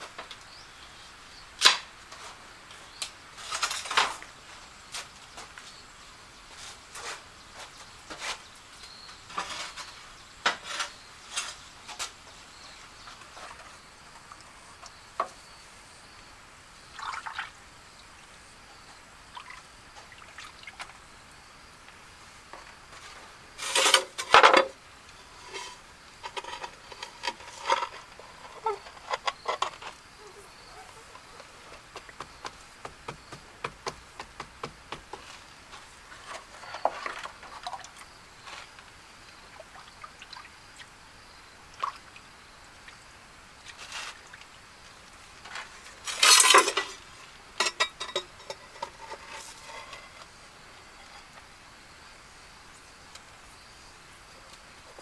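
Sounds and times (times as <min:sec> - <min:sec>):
masonry tools clinking and scraping: 0:09.3 - 0:12.2, 0:22.9 - 0:32.5, 0:45.5 - 0:51.5
water being poured: 0:17.0 - 0:17.6.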